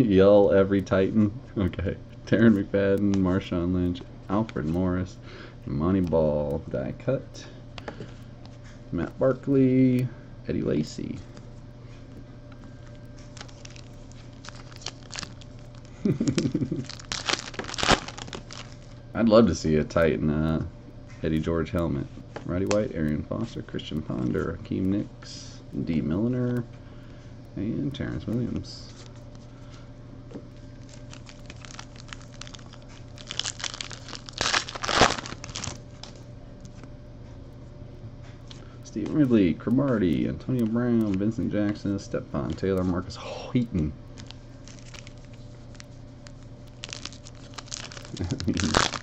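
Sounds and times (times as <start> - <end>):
foil wrapper crinkling and tearing: 13.2 - 19.0, 30.7 - 36.2, 44.1 - 49.0.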